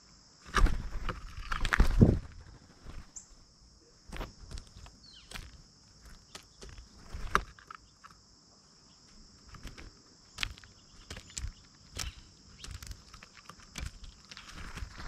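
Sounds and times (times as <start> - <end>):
insects chorus: 0.0 - 15.0
beaks tapping on feeder tray: 4.8 - 8.2, 9.5 - 14.9.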